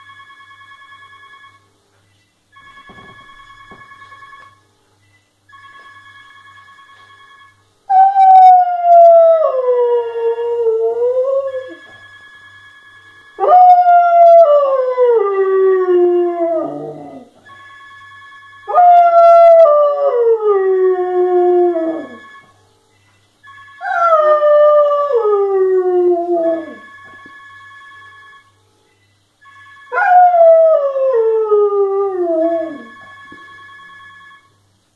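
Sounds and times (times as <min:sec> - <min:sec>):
telephone ringing: 0:00.0 - 0:01.8, 0:02.5 - 0:04.7, 0:05.5 - 0:07.7, 0:11.0 - 0:14.4, 0:17.4 - 0:19.6, 0:21.7 - 0:22.8, 0:23.4 - 0:25.0, 0:26.4 - 0:30.4, 0:32.4 - 0:34.7.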